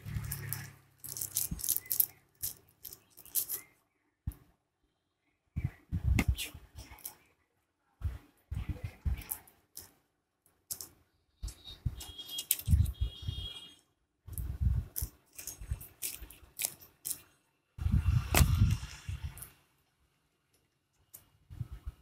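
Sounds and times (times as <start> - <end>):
paper wrapper crinkling: 0.1 - 3.7, 14.9 - 17.4.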